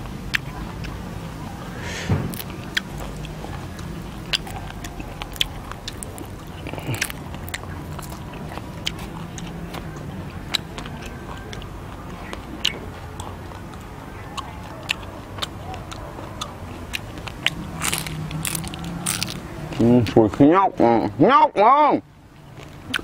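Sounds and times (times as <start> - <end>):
crunching fried insects: 0.0 - 20.4.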